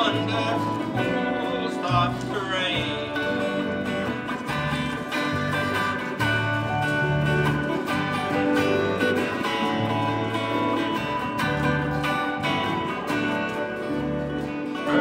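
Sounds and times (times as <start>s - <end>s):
guitars strumming chords: 0.0s - 15.0s.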